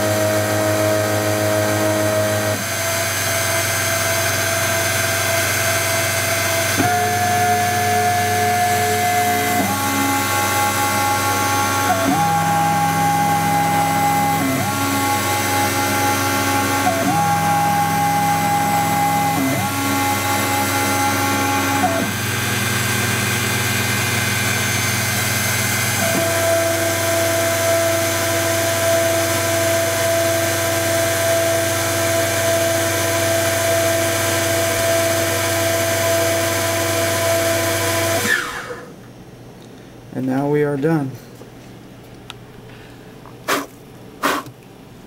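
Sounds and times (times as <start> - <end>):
milling machine motor whine: 0.0 - 39.2.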